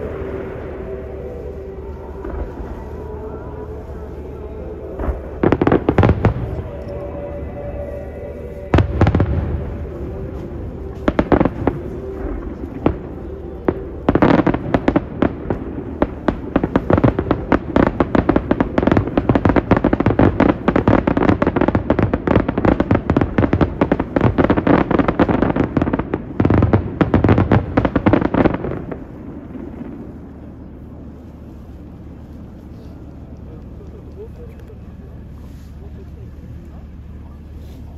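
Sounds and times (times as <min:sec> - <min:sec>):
music playing: 0:00.0 - 0:19.0
firework bangs and crackles: 0:04.9 - 0:37.6.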